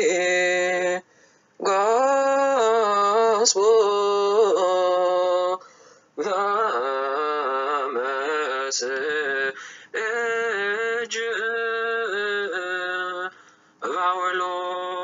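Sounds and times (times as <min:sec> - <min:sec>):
man chanting: 0:00.0 - 0:01.0, 0:06.2 - 0:15.0.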